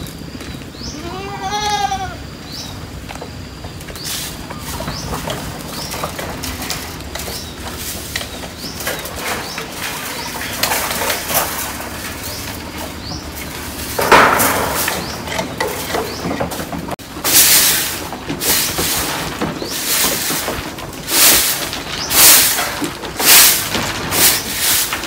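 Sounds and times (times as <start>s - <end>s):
rustling and scraping: 0.0s - 25.0s
birds chirping and cooing: 2.2s - 14.0s
broom sweeping wooden floor: 3.9s - 25.0s.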